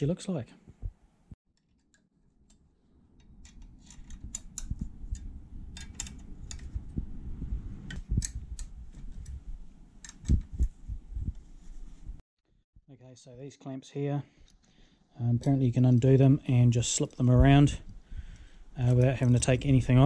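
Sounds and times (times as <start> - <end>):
allen key clicking on metal bolts: 3.2 - 6.8
low rubbing handling noise: 3.2 - 12.2.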